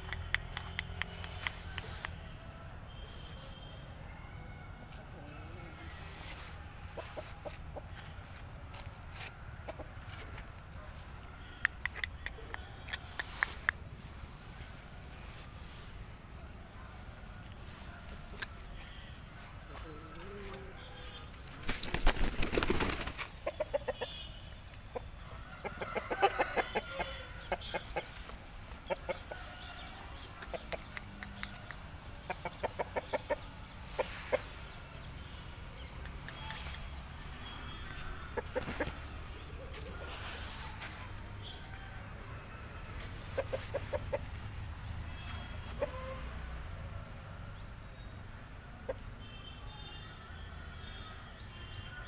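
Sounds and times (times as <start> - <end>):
rooster flapping wings: 21.4 - 23.4
rooster clucking: 23.4 - 24.2, 24.9 - 28.2, 37.9 - 40.2, 43.2 - 44.4.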